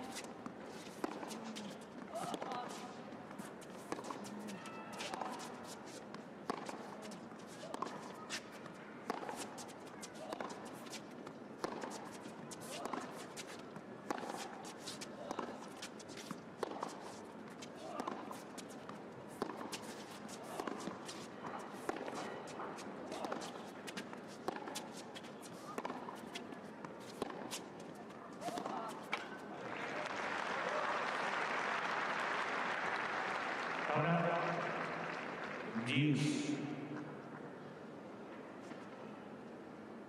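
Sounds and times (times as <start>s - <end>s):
shoes squeaking on court: 0.0s - 29.6s
racket striking tennis ball: 11.6s - 27.8s, 28.4s - 29.4s.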